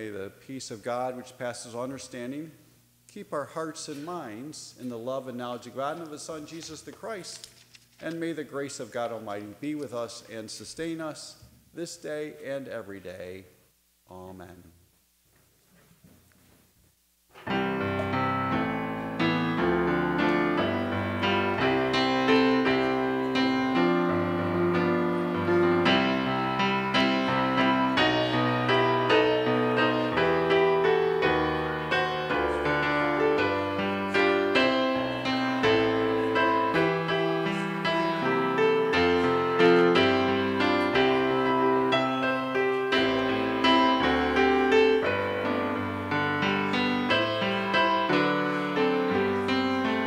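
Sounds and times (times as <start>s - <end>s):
solo piano music: 17.4s - 50.0s.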